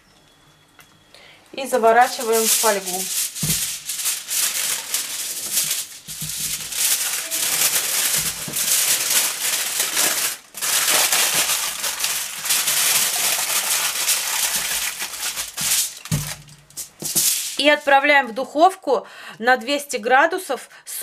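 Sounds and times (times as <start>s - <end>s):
aluminium foil crinkling: 1.8s - 17.9s.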